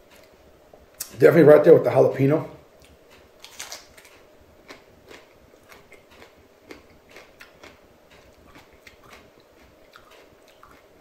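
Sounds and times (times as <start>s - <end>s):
chili pepper crunching: 2.8s - 11.0s.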